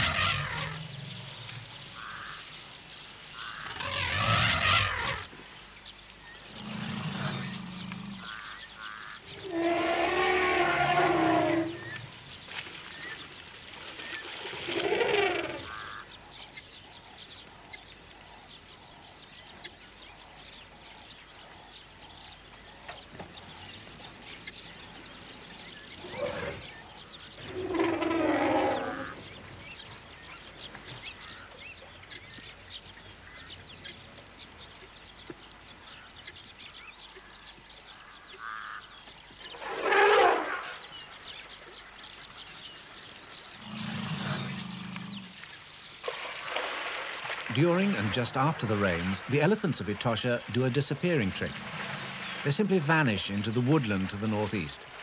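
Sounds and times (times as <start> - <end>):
elephants trumpeting: 0.0 - 1.3, 3.6 - 5.3, 9.3 - 12.0, 14.7 - 16.0, 27.4 - 29.2, 39.5 - 40.8, 43.6 - 45.4, 51.2 - 52.8
birds chirping: 0.0 - 55.0.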